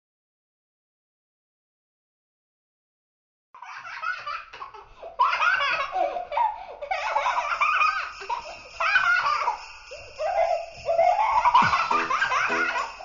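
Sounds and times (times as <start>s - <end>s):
young child laughing: 3.6s - 9.6s, 10.2s - 13.0s.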